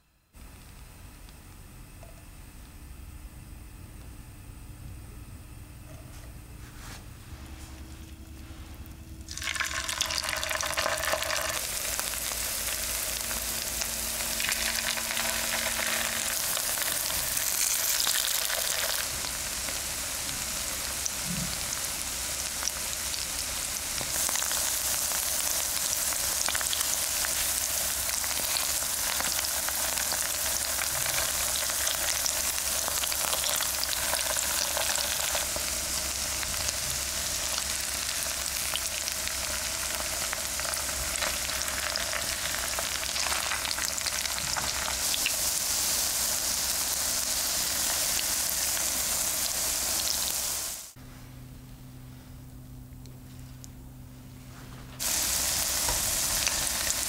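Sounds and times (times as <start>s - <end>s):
patties sizzling in hot oil: 8.8s - 51.0s, 55.0s - 57.0s.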